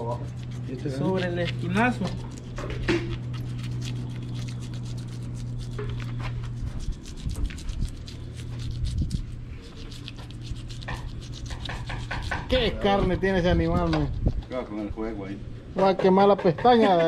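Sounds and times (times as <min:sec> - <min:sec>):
knife slicing through fish scales: 0:00.0 - 0:12.6
low hum: 0:00.0 - 0:16.3.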